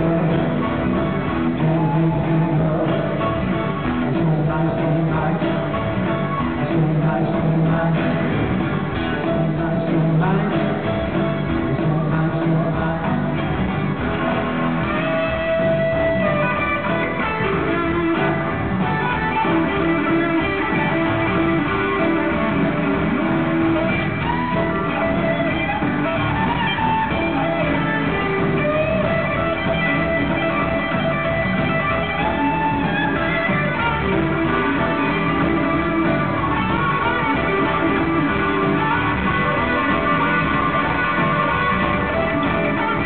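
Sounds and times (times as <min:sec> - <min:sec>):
blues rock band playing: 0:00.0 - 0:43.0
lead guitar sliding notes: 0:13.1 - 0:43.0.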